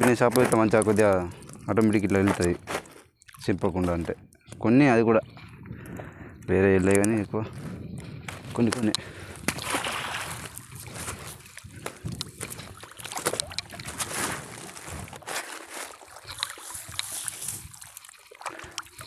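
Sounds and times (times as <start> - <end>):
water dripping and splashing: 9.0 - 19.0.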